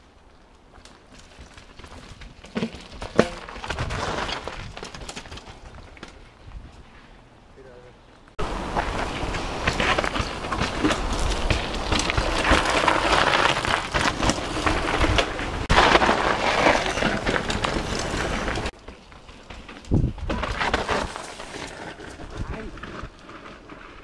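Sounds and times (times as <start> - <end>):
bike tyres crunching over stones: 0.0 - 7.2, 8.4 - 24.0.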